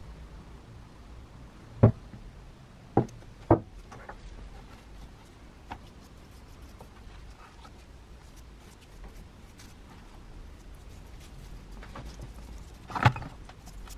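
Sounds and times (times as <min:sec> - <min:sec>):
brush dabbing liquid: 0:04.2 - 0:13.9.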